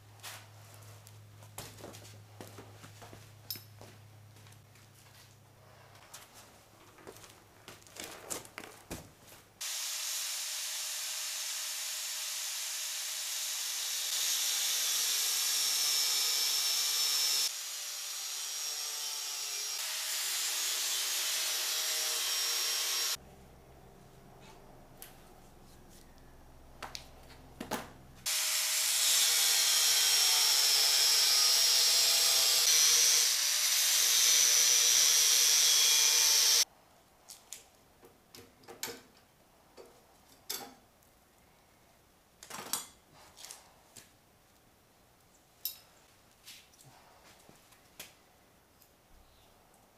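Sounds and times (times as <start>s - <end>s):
angle grinder grinding metal: 9.7s - 23.2s, 28.2s - 36.6s.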